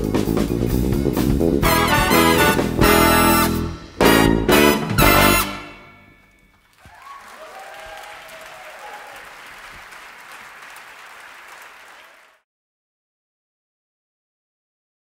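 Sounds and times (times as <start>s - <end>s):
big band final chord: 1.6s - 6.1s
audience applause: 6.6s - 12.4s
people whooping and cheering: 6.8s - 12.4s.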